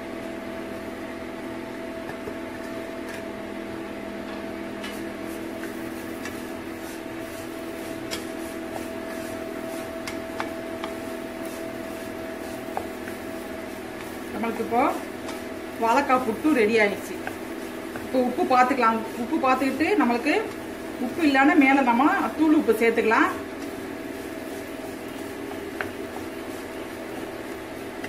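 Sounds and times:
appliance humming: 0:00.0 - 0:28.0
food rustling in pan: 0:04.9 - 0:28.0.

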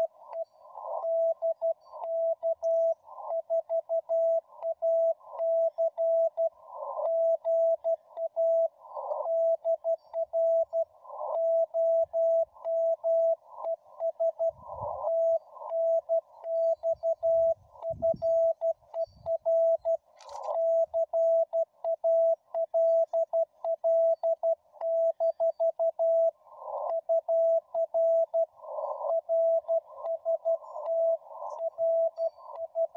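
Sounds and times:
morse code tone: 0:09.3 - 0:26.3, 0:27.0 - 0:32.9
sharp click: 0:20.2 - 0:20.6.

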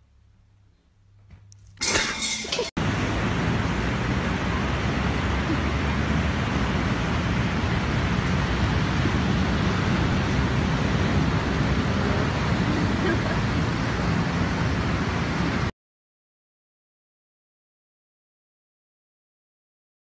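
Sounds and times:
wind: 0:00.0 - 0:15.7
ocean surf: 0:02.8 - 0:15.7.

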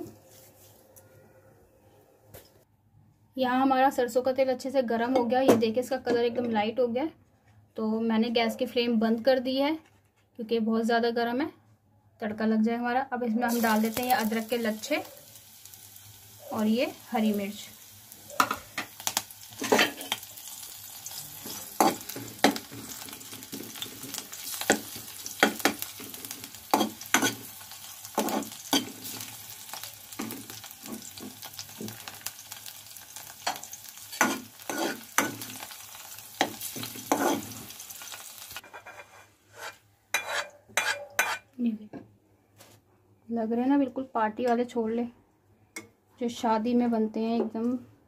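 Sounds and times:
vegetables sizzling in hot oil: 0:13.5 - 0:38.6
steel ladle scraping a pan: 0:19.5 - 0:20.3, 0:21.1 - 0:29.3, 0:33.4 - 0:35.7, 0:36.4 - 0:37.8, 0:38.6 - 0:41.5.

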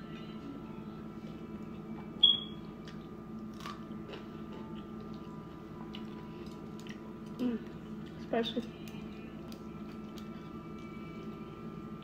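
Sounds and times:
steady low hum: 0:00.0 - 0:12.0
high-pitched beep: 0:02.2 - 0:02.6
chewing: 0:02.8 - 0:11.4.

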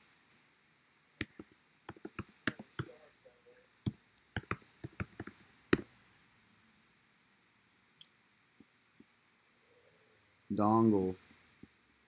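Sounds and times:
keyboard key clicks: 0:01.2 - 0:02.9, 0:04.2 - 0:05.4.

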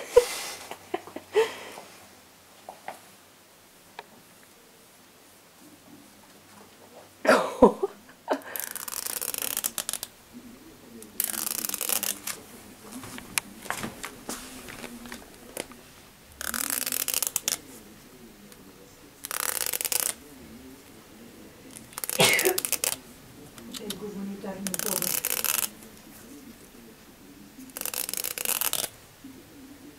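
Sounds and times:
comb teeth flicked rattling: 0:08.6 - 0:10.2, 0:11.0 - 0:12.4, 0:16.4 - 0:17.6, 0:19.2 - 0:20.2, 0:24.6 - 0:25.7, 0:27.7 - 0:29.0.

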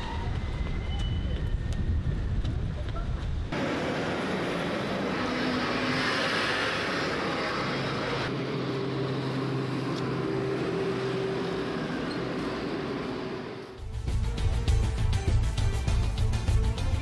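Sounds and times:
road traffic noise: 0:00.0 - 0:16.9
bus engine running: 0:03.4 - 0:16.9.

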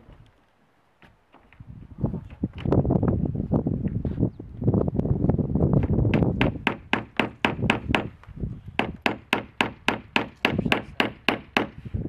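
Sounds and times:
wind rumble on microphone: 0:01.5 - 0:12.0
hammer driving nails into plywood: 0:05.8 - 0:08.2, 0:08.8 - 0:11.8.

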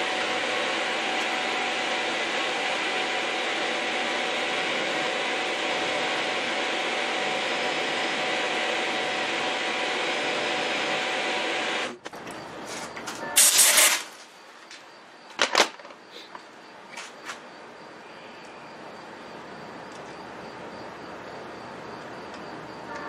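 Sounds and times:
milling machine cutting metal: 0:00.0 - 0:12.0
loud hissing burst: 0:13.4 - 0:14.2.

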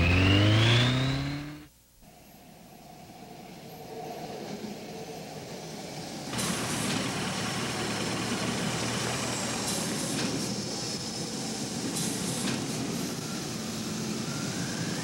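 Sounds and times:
vehicle noise: 0:00.0 - 0:01.7.

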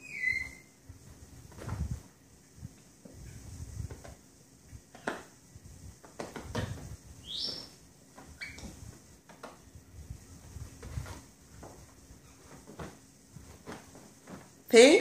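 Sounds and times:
brief high squeak: 0:00.0 - 0:00.7.

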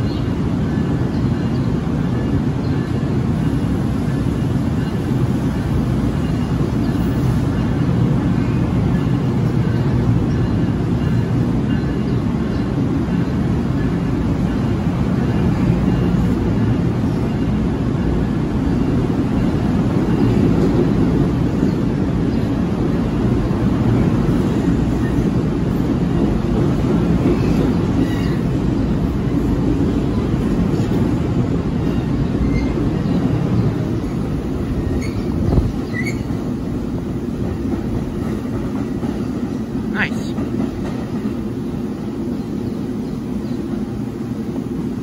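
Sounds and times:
train wheels rumbling on track: 0:00.0 - 0:45.0.

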